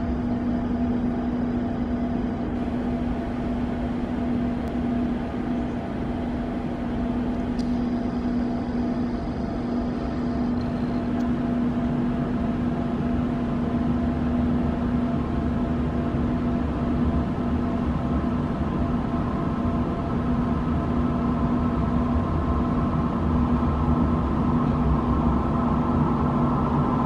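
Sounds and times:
metro station mechanical drone: 0:00.0 - 0:27.0.

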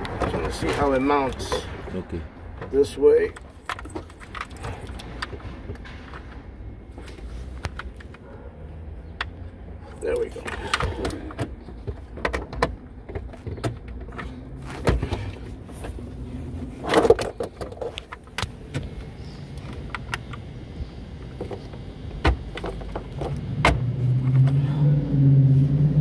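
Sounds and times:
plastic parts clicking and rattling: 0:03.3 - 0:06.3, 0:16.8 - 0:18.9.

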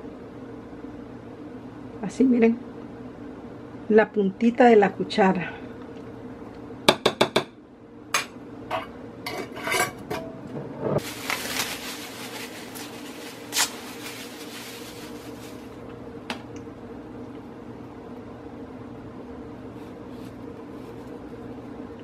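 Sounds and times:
steady low hum: 0:00.0 - 0:22.0
rustling: 0:11.0 - 0:15.8.

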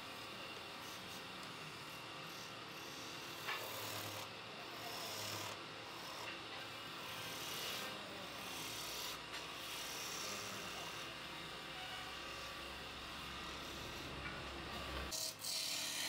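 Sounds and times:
chisel scraping wood on a lathe: 0:00.2 - 0:11.5, 0:13.3 - 0:16.0.

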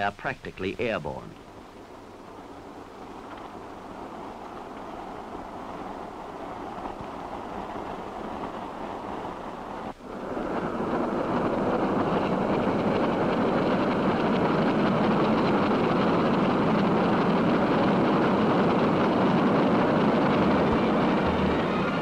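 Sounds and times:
train wheels roaring on rails: 0:01.4 - 0:22.0.

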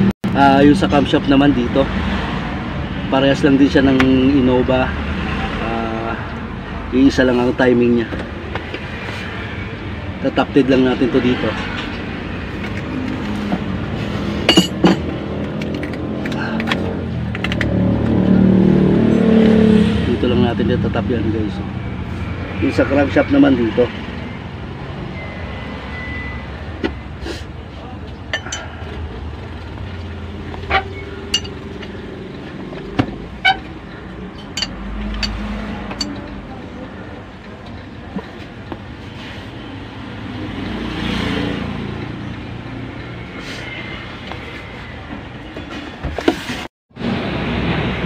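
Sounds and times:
wrench clinking on metal bolt: 0:14.5 - 0:15.1, 0:31.3 - 0:31.6, 0:34.4 - 0:36.3.

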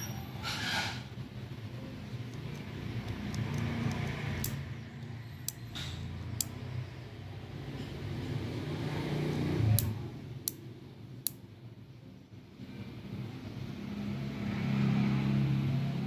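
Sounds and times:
low vehicle engine hum: 0:00.0 - 0:16.0.

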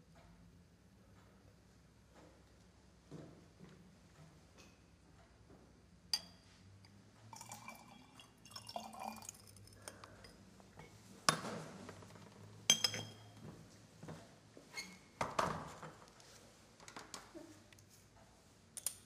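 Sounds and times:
glassware clinking: 0:06.2 - 0:06.4, 0:07.4 - 0:10.4, 0:12.7 - 0:13.4.

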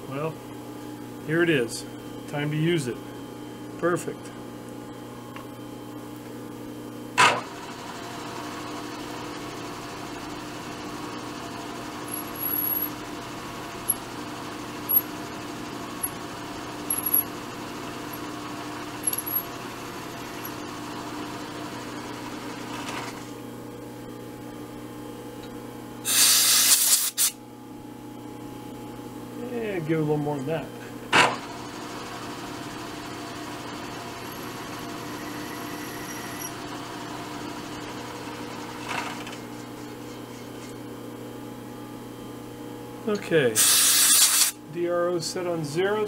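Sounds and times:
milling spindle humming: 0:00.0 - 0:23.3, 0:28.9 - 0:43.2
loud hiss: 0:26.1 - 0:27.3, 0:43.6 - 0:44.6
drill squeaks and ticks: 0:35.2 - 0:36.6.

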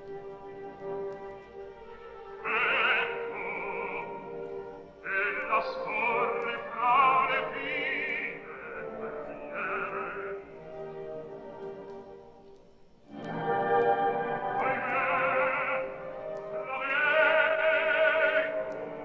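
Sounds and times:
orchestra: 0:00.0 - 0:19.0
operatic voice singing: 0:02.4 - 0:10.6, 0:14.3 - 0:19.0.

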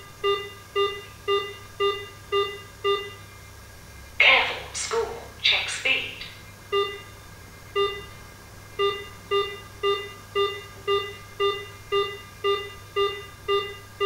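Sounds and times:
short electronic beeps: 0:00.2 - 0:03.2, 0:06.7 - 0:07.2, 0:07.8 - 0:08.1, 0:08.8 - 0:13.9.

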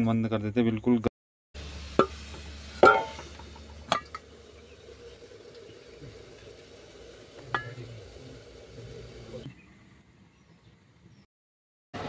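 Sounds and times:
steel cookware clanking: 0:02.8 - 0:04.2, 0:07.4 - 0:08.1.

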